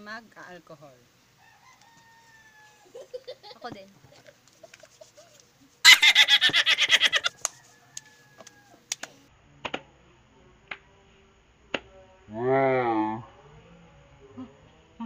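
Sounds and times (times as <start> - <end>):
palms clapping and patting: 7.0 - 9.8.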